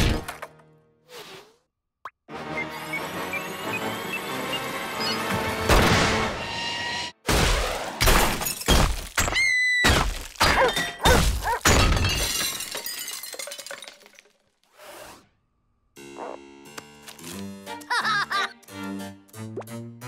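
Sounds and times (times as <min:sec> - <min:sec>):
cartoon smashes and glass shattering: 0:07.3 - 0:14.4.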